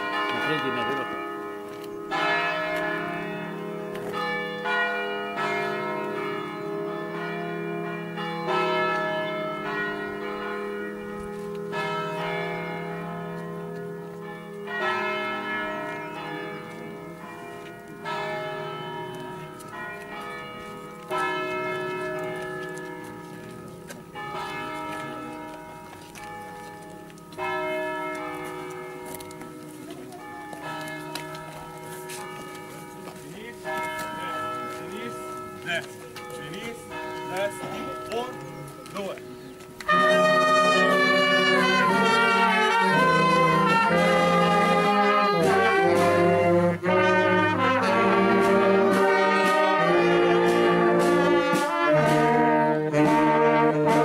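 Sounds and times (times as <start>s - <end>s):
church bells ringing: 0.0s - 54.0s.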